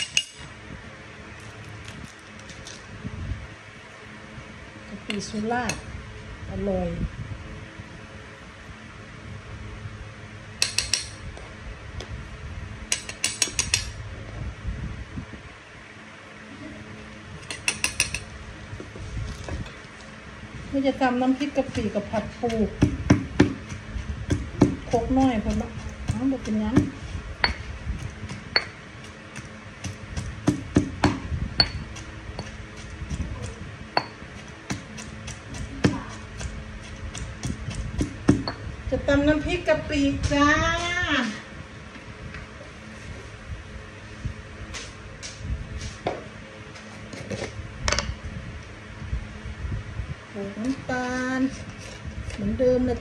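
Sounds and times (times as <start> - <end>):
metal spoon tapping stone mortar: 0.0 - 0.4, 10.6 - 11.2, 12.9 - 13.9, 17.5 - 18.3, 22.5 - 27.7, 28.3 - 28.8, 29.4 - 32.9, 37.1 - 38.6.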